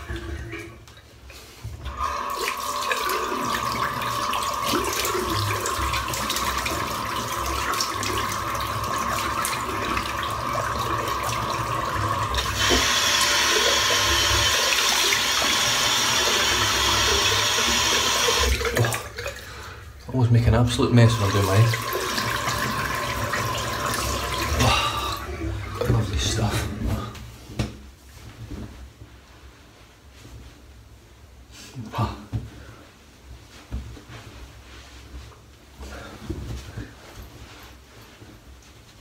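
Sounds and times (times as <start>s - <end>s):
tap running into sink: 12.3s - 15.6s.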